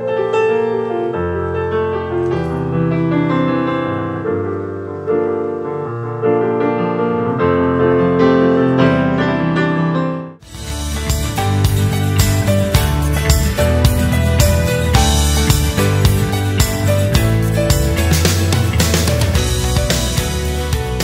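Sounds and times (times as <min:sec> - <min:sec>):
piano chords: 0:00.0 - 0:21.0.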